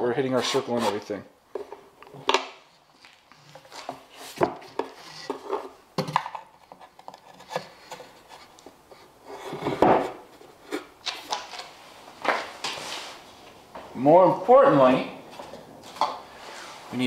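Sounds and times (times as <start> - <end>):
wood scrape and thud: 9.4 - 10.2.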